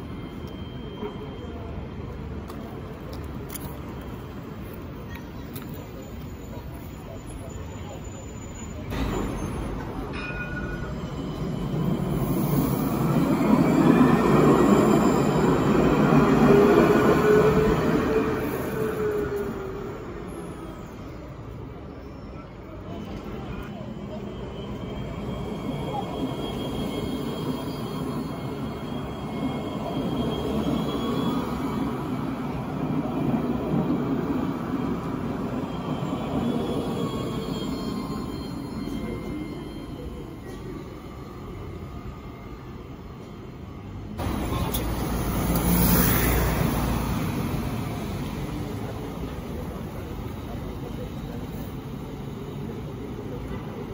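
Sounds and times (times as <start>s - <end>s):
faint high squeal: 0.0s - 2.8s, 3.5s - 43.8s
tram rolling rumble: 0.0s - 53.9s.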